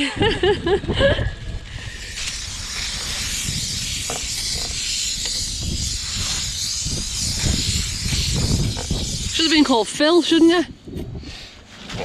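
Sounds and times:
aerosol spray can hissing: 1.7 - 10.6.

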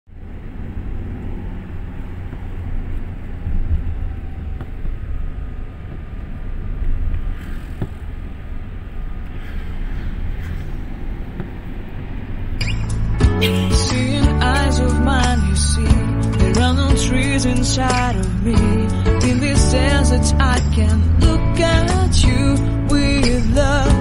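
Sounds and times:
car engine and tyre rumble: 0.1 - 24.0.

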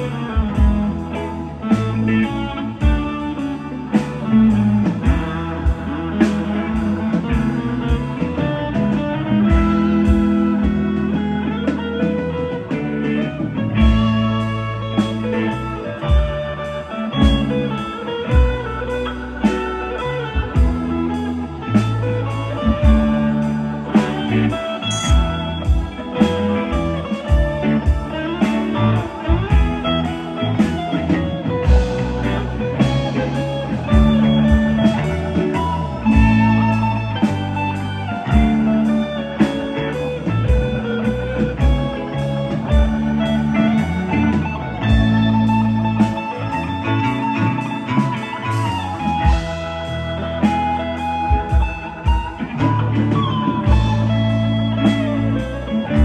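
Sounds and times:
lead guitar bending: 0.0 - 56.0
live rock band playing: 0.0 - 56.0.

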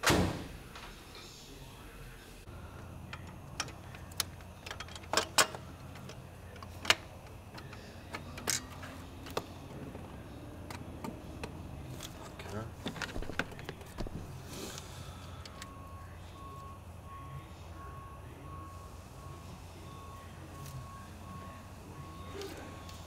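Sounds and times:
light metal clicks and knocks: 3.0 - 9.5.

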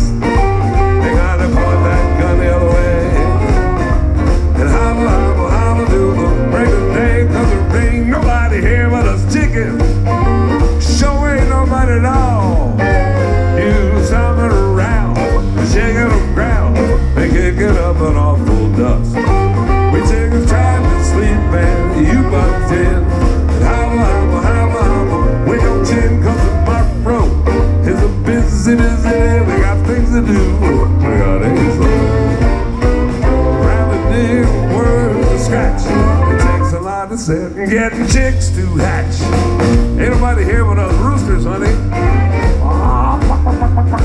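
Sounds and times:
western swing band playing: 0.0 - 44.0.

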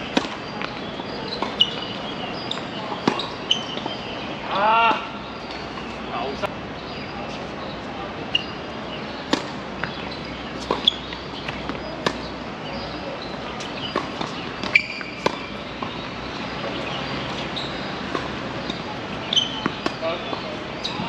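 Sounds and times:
tennis balls popping off rackets: 0.0 - 4.0, 9.2 - 21.0.

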